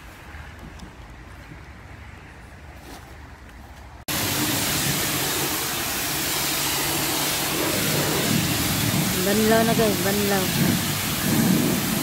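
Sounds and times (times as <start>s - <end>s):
pressure washer spraying water: 4.1s - 12.0s.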